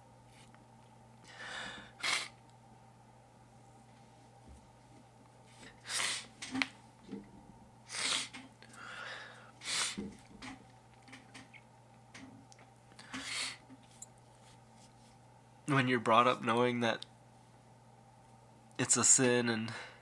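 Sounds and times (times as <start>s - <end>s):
man sniffling while crying: 1.3s - 2.4s.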